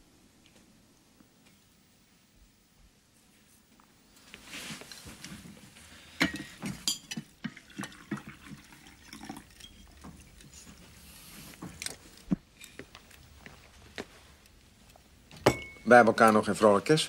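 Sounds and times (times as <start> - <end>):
tableware clinking: 6.2 - 10.8, 15.3 - 15.9.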